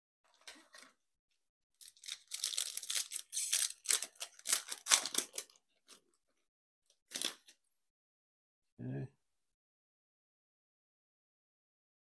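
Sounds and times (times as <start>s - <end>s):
foil wrapper tearing: 1.8s - 5.6s
faint foil rustles: 1.8s - 6.0s.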